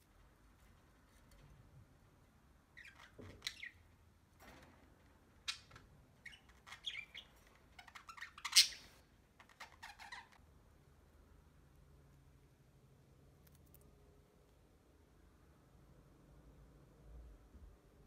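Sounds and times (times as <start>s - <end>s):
budgerigar chirping and squawking: 6.3s - 10.4s.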